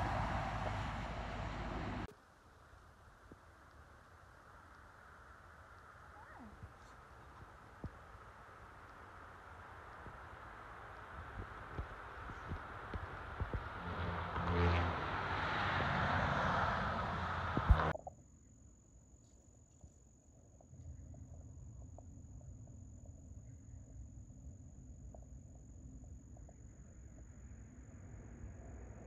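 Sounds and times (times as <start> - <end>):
vehicle passing: 0.0 - 2.1, 10.6 - 17.9
faint low rumble: 0.0 - 15.2, 16.7 - 29.0.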